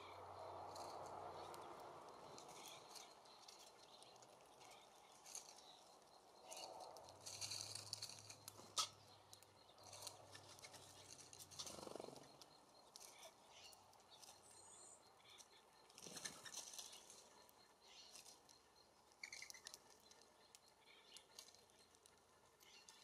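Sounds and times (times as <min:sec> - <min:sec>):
songbirds chirping: 0:00.0 - 0:23.0.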